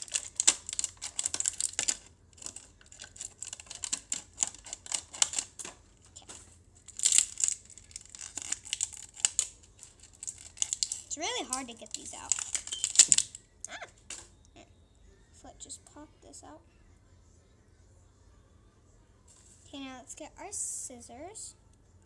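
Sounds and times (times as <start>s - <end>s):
plastic packaging crackling: 0.0s - 14.3s.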